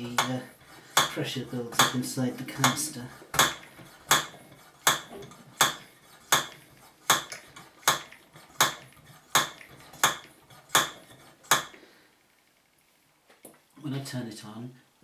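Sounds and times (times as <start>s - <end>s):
lamp pump metallic clacks: 0.0s - 11.8s.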